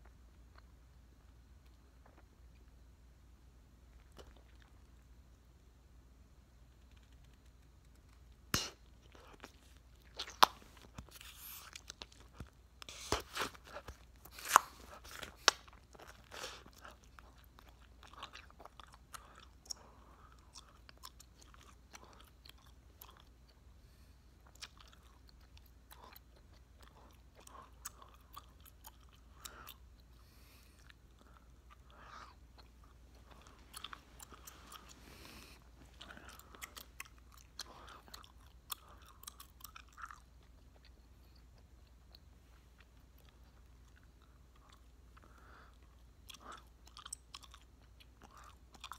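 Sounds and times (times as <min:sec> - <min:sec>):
bubblegum snaps: 0:08.4 - 0:08.8
gum chewing wet smacking: 0:30.8 - 0:48.9.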